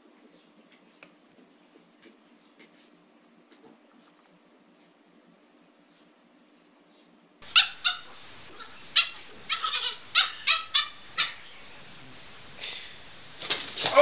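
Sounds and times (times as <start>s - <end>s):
puppy yipping: 7.5s - 11.4s.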